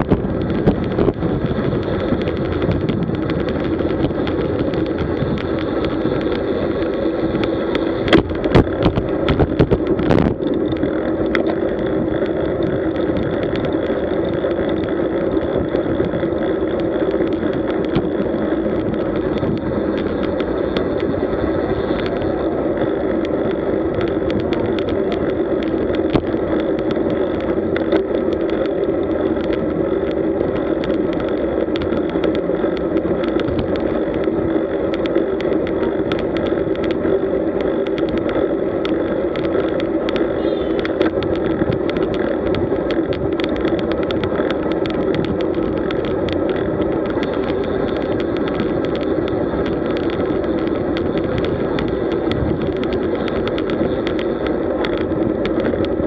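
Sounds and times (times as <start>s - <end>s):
ticks and knocks from vibration: 0.0s - 22.2s
bicycle tyre noise: 0.0s - 56.0s
wind rush: 0.0s - 56.0s.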